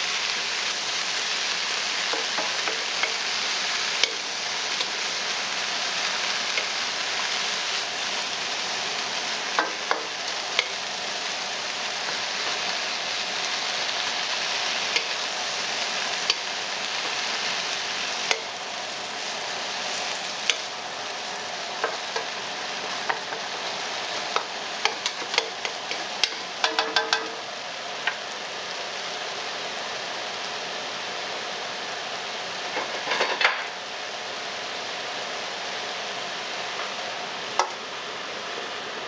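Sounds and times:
vegetables sizzling in a pan: 0:00.0 - 0:39.0
wooden spatula clattering on pan: 0:26.2 - 0:27.4.

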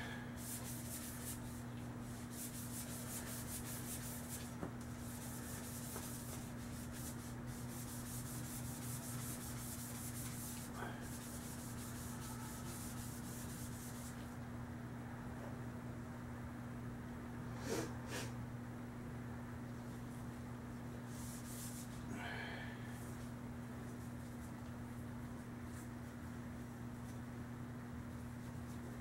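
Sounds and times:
low electrical hum: 0:00.0 - 0:29.0
gloved hand rubbing metal: 0:00.4 - 0:14.2.

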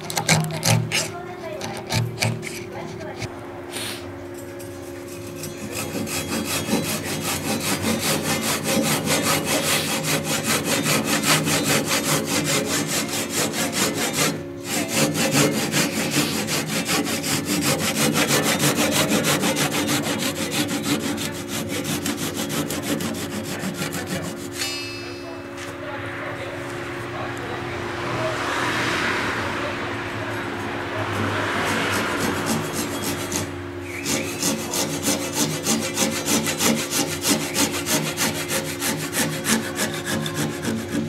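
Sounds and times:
hand saw cutting wood: 0:00.0 - 0:03.3, 0:05.0 - 0:24.8, 0:31.1 - 0:41.0
steady low hum: 0:00.0 - 0:41.0.

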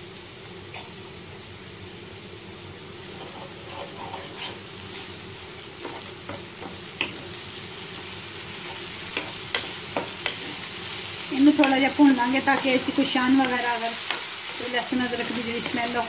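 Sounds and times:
onions sizzling in oil: 0:00.0 - 0:16.0
spatula tapping pan: 0:09.1 - 0:10.6, 0:11.5 - 0:14.4.

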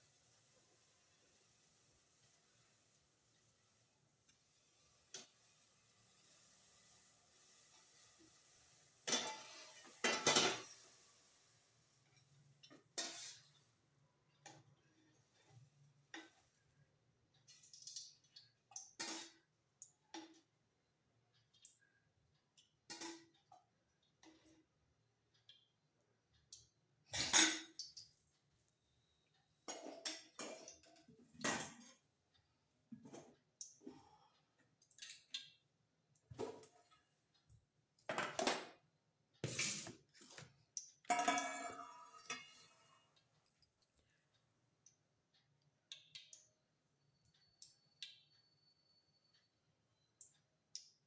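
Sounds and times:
metal pots and bowls clinking: 0:09.0 - 0:10.9, 0:12.2 - 0:13.6, 0:27.2 - 0:27.8, 0:29.7 - 0:32.0, 0:41.0 - 0:43.0.

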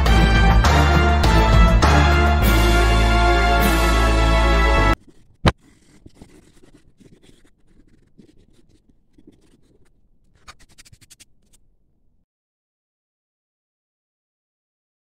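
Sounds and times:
pencil scratching on paper: 0:04.8 - 0:11.7.

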